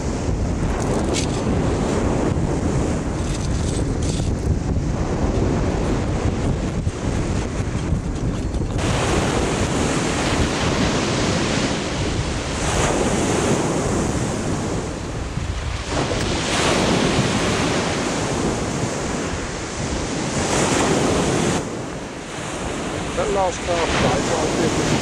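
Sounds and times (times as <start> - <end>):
wind buffeting microphone: 0.0 - 25.0.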